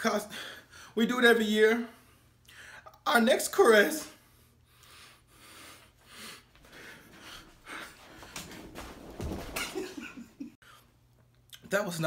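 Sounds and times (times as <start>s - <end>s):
man gasping breaths: 4.2s - 8.8s.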